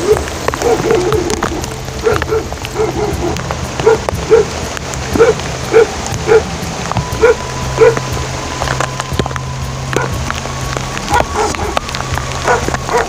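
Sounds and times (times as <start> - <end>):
dog barking: 0.0 - 4.5, 5.2 - 6.5, 7.2 - 8.0, 12.4 - 13.0.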